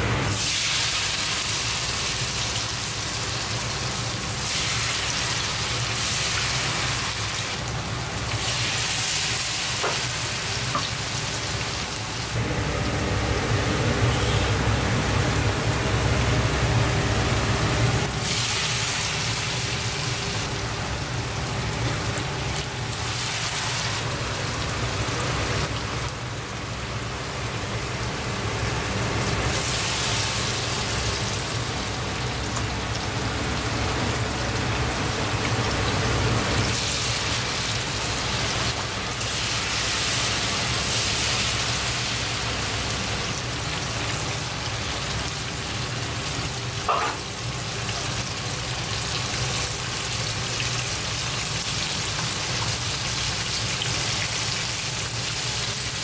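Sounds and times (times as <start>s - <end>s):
oil sizzling in a wok: 0.0s - 56.0s.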